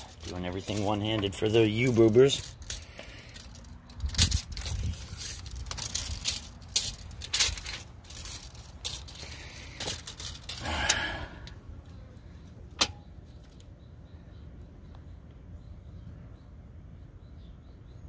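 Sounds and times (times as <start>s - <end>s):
scraping rustle: 0.0s - 10.8s
rustling of dry weeds: 0.0s - 11.5s.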